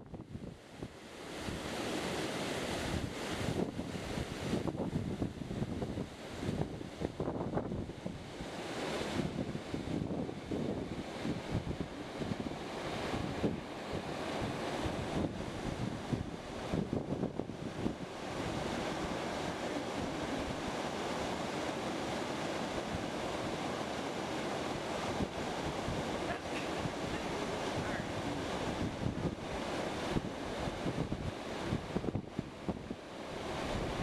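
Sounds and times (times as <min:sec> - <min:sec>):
wind buffeting microphone: 0:00.0 - 0:34.0
waterfall rushing: 0:18.7 - 0:30.7.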